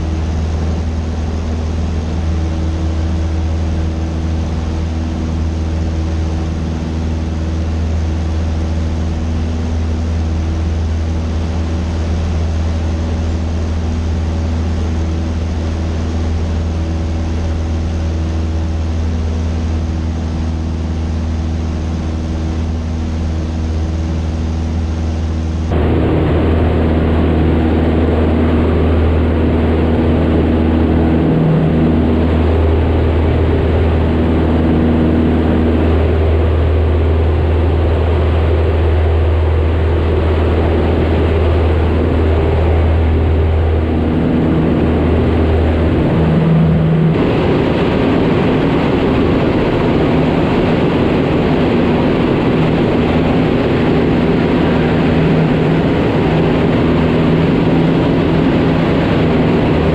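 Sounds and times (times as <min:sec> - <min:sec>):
airplane engine and propeller droning: 0:00.0 - 0:59.9
rough hissy drone: 0:24.1 - 0:59.9.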